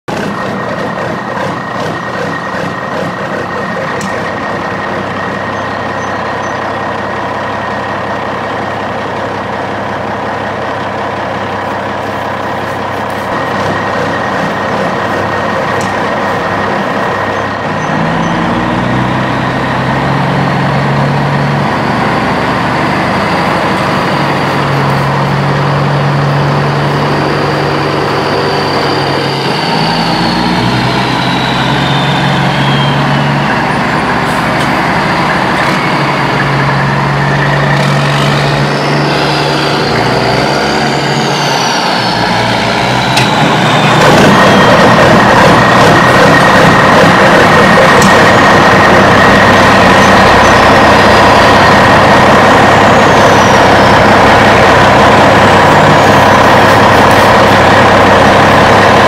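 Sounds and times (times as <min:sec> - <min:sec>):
deep engine rumble with low hum: 0:00.0 - 0:59.0
heavy truck engine running: 0:00.0 - 0:59.0.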